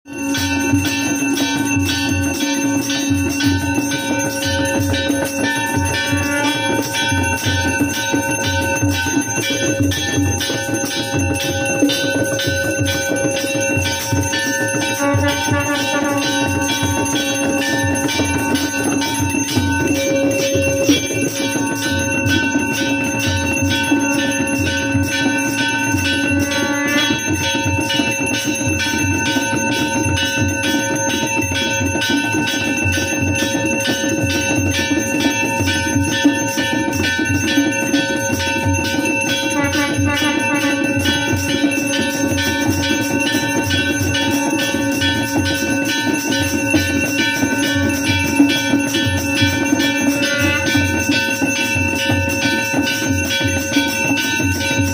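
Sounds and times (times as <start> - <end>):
bells ringing in quick beat: 0.1 - 54.9
held tones: 0.9 - 27.2.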